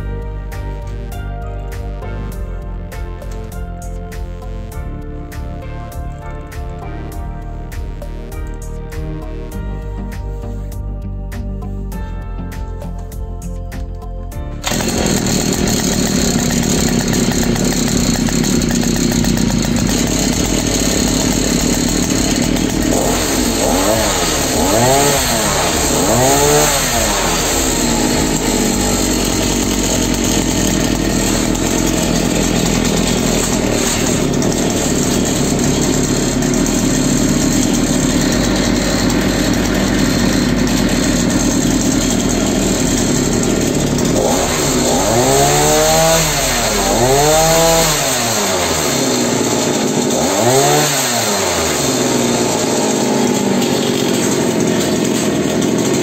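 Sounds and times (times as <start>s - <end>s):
two-stroke engine revving: 14.6s - 56.0s.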